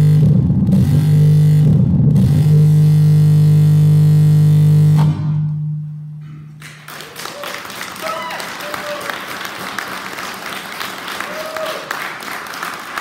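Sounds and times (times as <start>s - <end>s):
electronic noise drone: 0.0s - 6.2s
audience applause: 6.6s - 13.0s.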